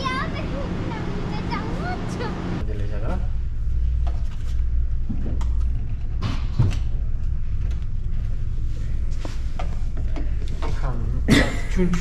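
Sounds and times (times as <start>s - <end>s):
ferry engine hum: 0.0s - 2.7s.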